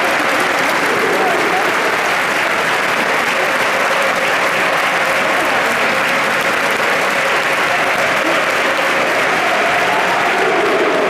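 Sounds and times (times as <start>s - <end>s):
crowd shouting and singing: 0.0s - 11.0s.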